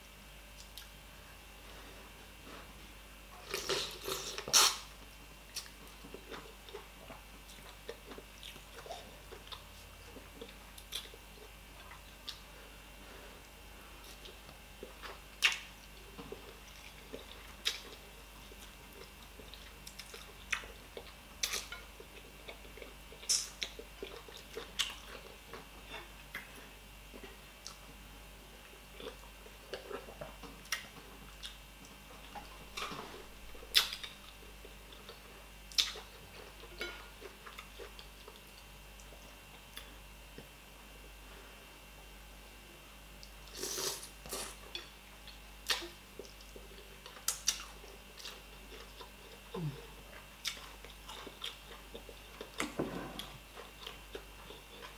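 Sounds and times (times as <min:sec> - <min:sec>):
wet chewing and lip-smacking: 0:05.5 - 0:12.5, 0:14.1 - 0:27.9, 0:28.6 - 0:40.5, 0:43.2 - 0:52.8.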